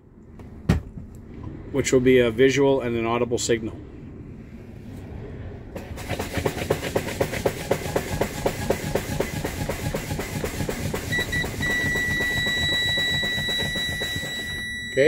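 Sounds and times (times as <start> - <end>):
warning buzzer high tone: 11.1 - 15.0.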